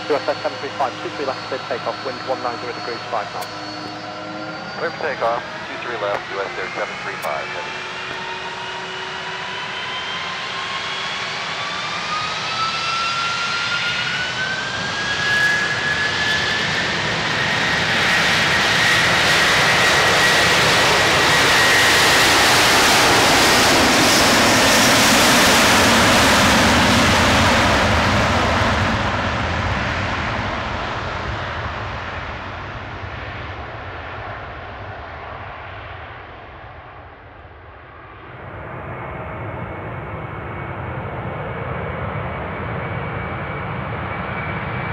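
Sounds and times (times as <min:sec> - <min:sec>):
jet engines spooling up: 0:00.0 - 0:11.2
jet aircraft passing on takeoff: 0:00.0 - 0:36.9, 0:37.9 - 0:44.9.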